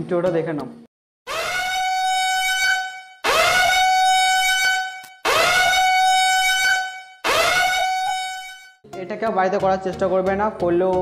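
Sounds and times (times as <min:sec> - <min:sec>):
alarm horn blasts: 0:01.3 - 0:08.8.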